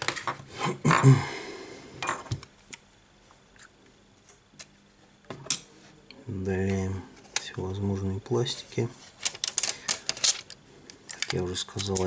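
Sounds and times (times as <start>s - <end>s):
rustle and scrape of parts: 8.4s - 12.0s
plastic pieces clicking: 9.2s - 12.0s.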